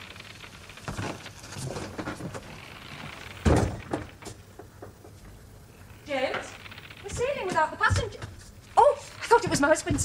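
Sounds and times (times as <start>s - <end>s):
footsteps on wooden boards: 7.1s - 8.7s.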